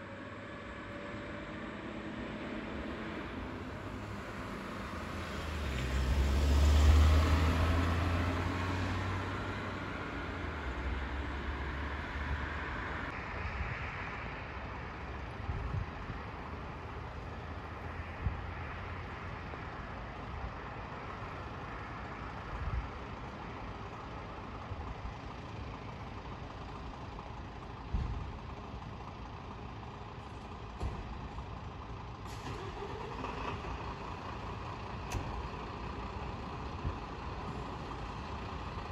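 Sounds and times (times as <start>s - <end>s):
distant traffic: 0.0s - 38.9s
vehicle driving past: 0.2s - 14.2s.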